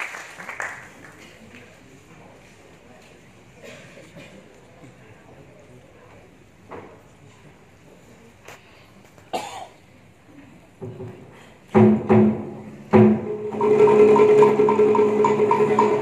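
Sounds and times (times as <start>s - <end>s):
audience cough: 3.6s - 4.5s, 9.3s - 9.8s.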